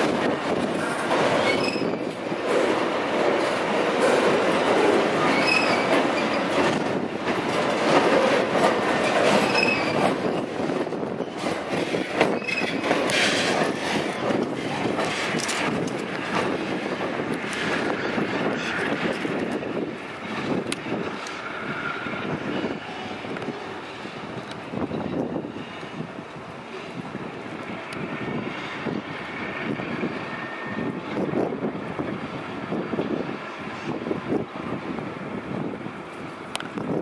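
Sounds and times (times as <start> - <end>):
clatter over rail joints: 0.0 - 21.5
train wheels rumbling on rail: 0.0 - 37.0
wheel squeals: 0.8 - 2.2, 5.2 - 6.7, 9.0 - 10.5, 12.2 - 13.5.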